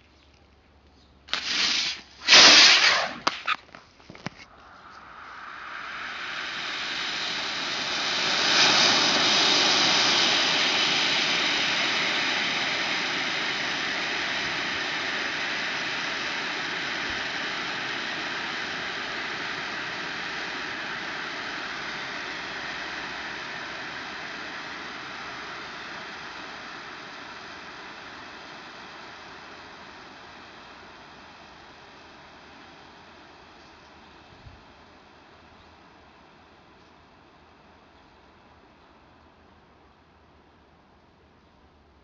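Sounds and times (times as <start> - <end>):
smoke grenade hissing: 1.3 - 16.1.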